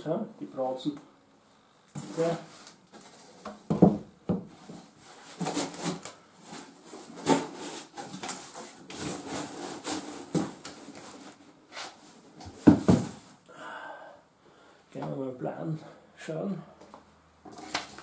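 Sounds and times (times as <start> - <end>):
cardboard flaps scraping and rustling: 2.0 - 3.7, 4.5 - 13.3
boards knocking in box: 3.5 - 4.6, 12.4 - 13.3.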